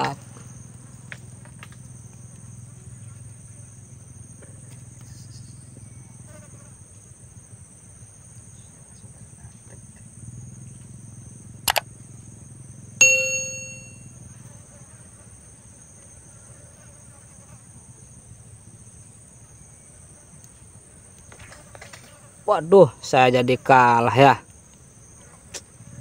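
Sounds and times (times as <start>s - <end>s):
insects buzzing: 0.0s - 26.0s
metallic ding: 13.0s - 14.1s.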